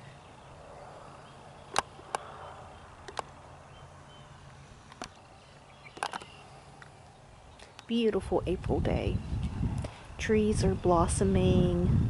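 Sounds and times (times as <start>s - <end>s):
low steady hum: 0.0s - 12.0s
sharp clicks and taps: 3.0s - 3.3s, 6.0s - 6.9s.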